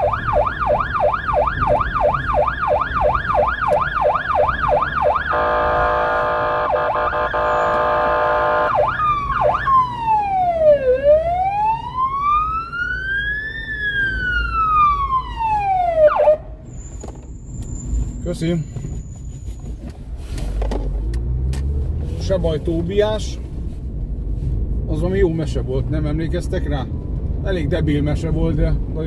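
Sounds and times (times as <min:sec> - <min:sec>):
emergency siren: 0:00.0 - 0:16.6
road and engine rumble: 0:00.0 - 0:29.0.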